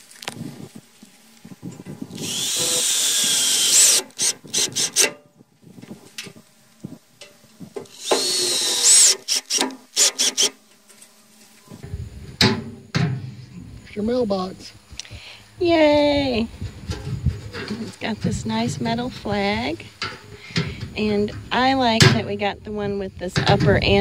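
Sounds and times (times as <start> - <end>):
cordless drill driving screws: 2.1 - 5.1, 7.8 - 10.6.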